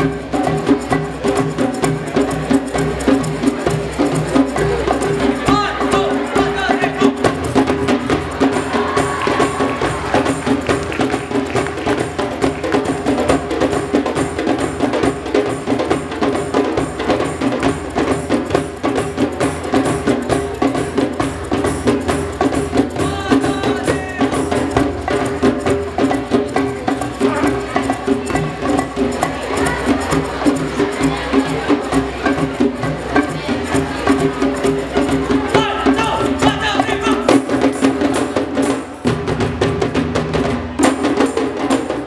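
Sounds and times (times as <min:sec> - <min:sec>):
hand drums playing rhythm: 0:00.0 - 0:42.0.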